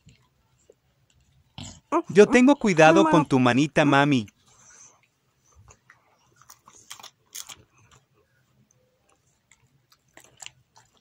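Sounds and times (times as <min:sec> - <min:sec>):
dog chewing food: 0:09.1 - 0:11.0.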